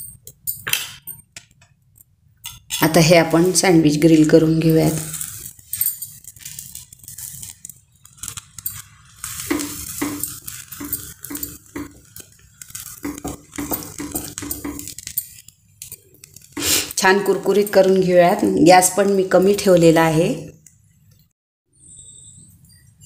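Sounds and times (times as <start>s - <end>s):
butter sizzling on hot griddle: 5.0s - 17.0s.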